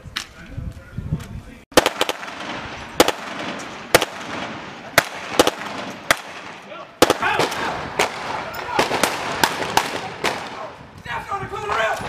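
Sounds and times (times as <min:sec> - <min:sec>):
rifle shots with echo: 0:01.7 - 0:10.8.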